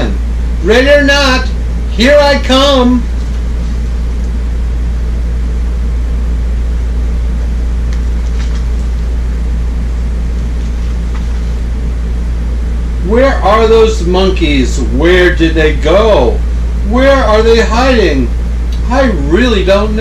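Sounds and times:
deep drone: 0:00.0 - 0:20.0
low mechanical hum: 0:00.0 - 0:20.0.

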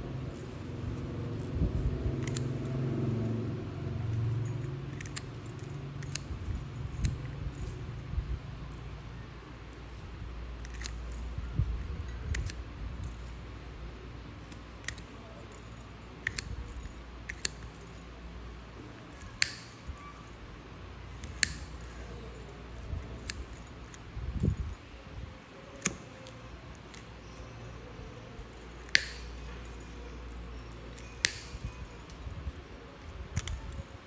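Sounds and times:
nail nippers clicking: 0:00.3 - 0:03.4, 0:04.0 - 0:08.1, 0:10.6 - 0:11.3, 0:12.0 - 0:13.3, 0:14.5 - 0:18.0, 0:19.0 - 0:20.0, 0:21.1 - 0:22.1, 0:22.8 - 0:24.7, 0:25.6 - 0:30.3, 0:30.9 - 0:32.3, 0:33.1 - 0:33.9.

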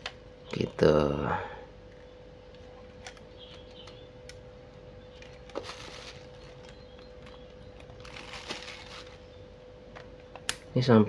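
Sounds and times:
faint steady hum: 0:00.0 - 0:11.0
bubble wrap crinkling: 0:05.2 - 0:09.3.

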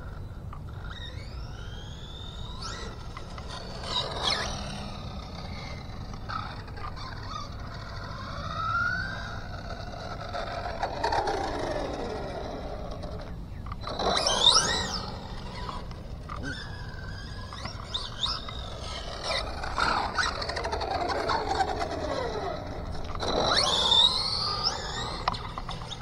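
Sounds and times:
electric motor whining: 0:00.0 - 0:26.0
low background noise: 0:00.0 - 0:26.0.

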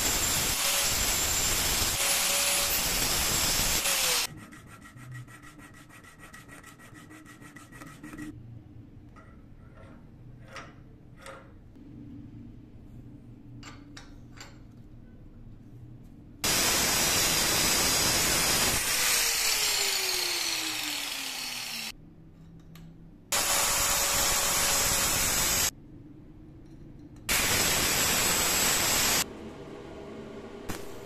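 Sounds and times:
welding arc crackling: 0:27.3 - 0:29.2, 0:30.7 - 0:31.0.

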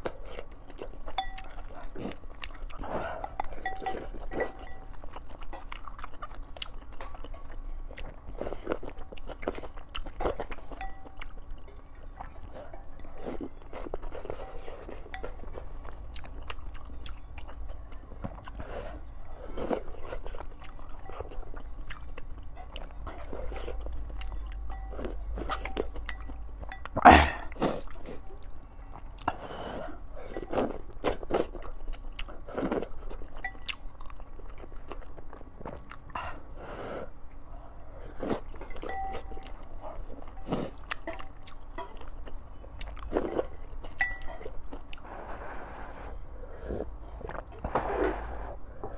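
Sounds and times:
person chewing and slurping: 0:00.0 - 0:36.5, 0:37.9 - 0:48.9.

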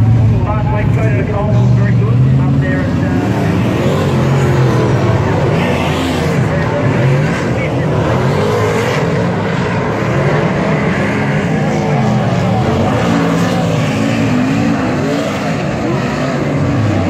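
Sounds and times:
racing car engines: 0:00.0 - 0:17.0.

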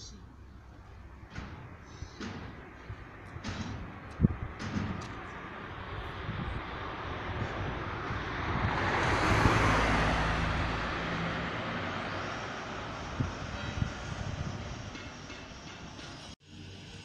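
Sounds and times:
car driving past: 0:05.4 - 0:14.6.

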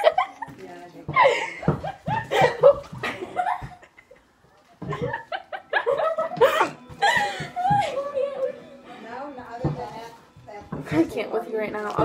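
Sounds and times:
girls laughing: 0:00.0 - 0:08.6.

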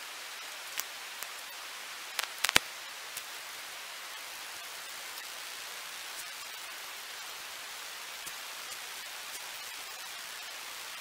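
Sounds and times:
faint ticks: 0:02.2 - 0:02.6.

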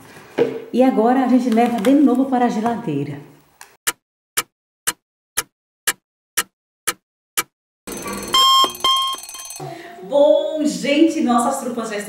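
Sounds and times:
clock ticking: 0:03.9 - 0:09.4
short beeps: 0:07.9 - 0:09.6
alarm clock ringing: 0:07.9 - 0:09.8.

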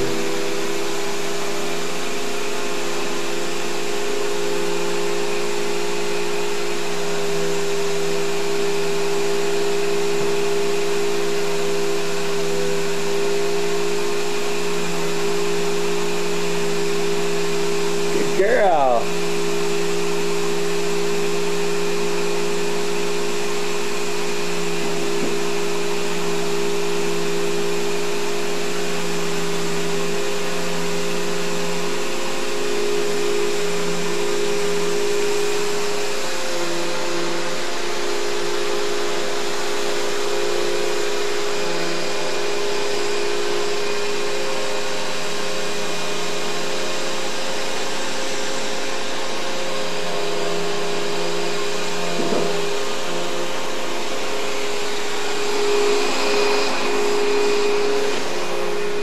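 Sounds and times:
vacuum cleaner running on carpet: 0:00.0 - 0:59.0.

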